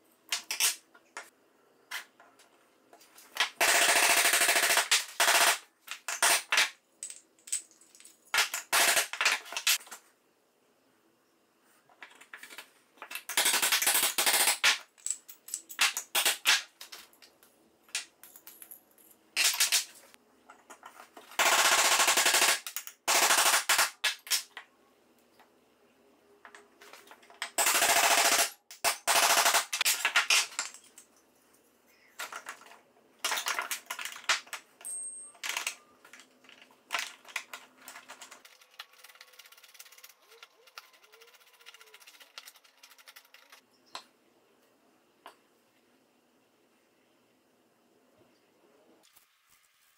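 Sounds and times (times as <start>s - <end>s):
rapid metallic clicking: 38.0s - 43.6s.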